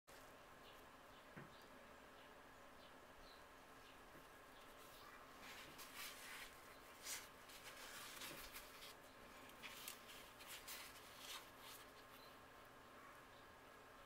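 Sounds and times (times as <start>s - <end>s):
low steady hiss: 0.1s - 14.0s
soft brushing: 4.2s - 12.4s
cloth gloves rustling on camera: 4.6s - 12.4s.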